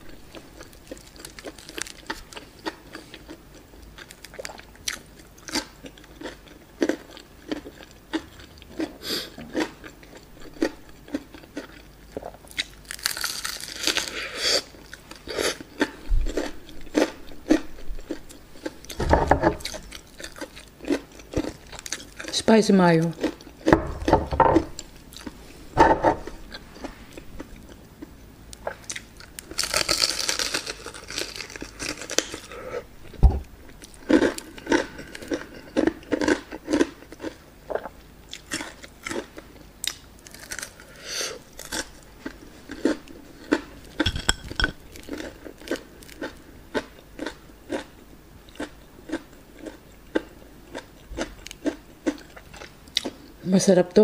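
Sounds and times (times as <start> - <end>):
crunchy chewing of fried chicken: 0.1 - 25.6, 26.2 - 53.4
low thump: 33.2 - 33.5.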